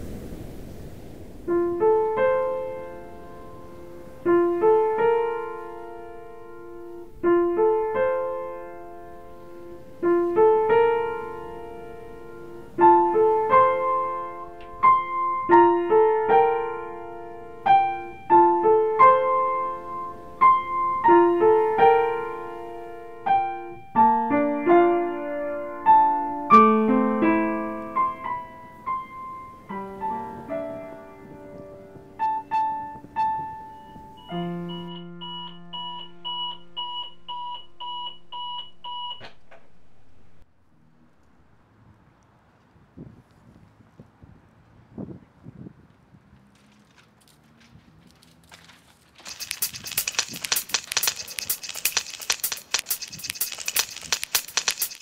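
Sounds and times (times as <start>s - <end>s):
slow piano melody: 1.4s - 37.3s
alarm clock beeping: 34.2s - 39.2s.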